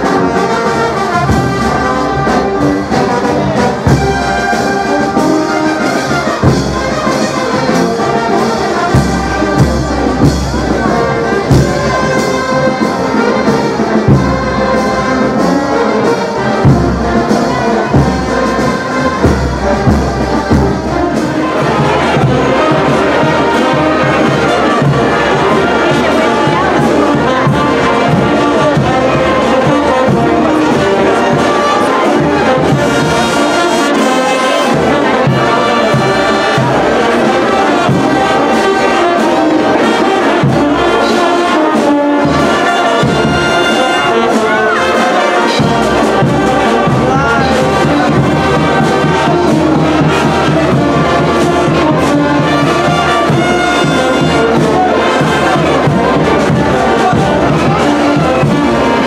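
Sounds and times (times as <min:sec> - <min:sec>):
trumpets and trombones: 0:00.0 - 0:59.0.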